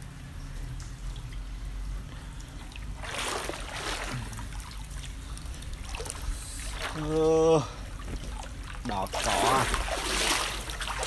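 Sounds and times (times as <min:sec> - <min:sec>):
low steady rumble: 0:00.0 - 0:11.0
wading through shallow water: 0:02.3 - 0:11.0.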